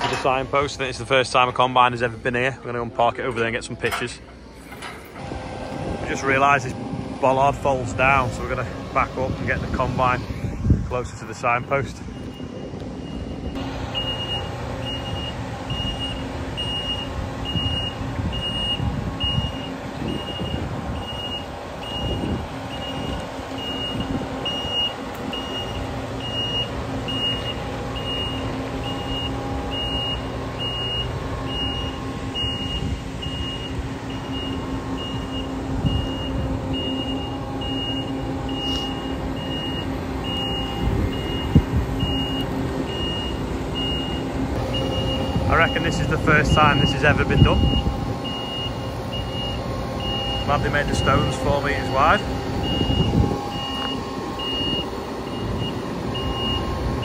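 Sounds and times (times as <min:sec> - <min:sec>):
engine humming: 0:00.0 - 0:57.0
reversing alarm beeping: 0:11.6 - 0:57.0.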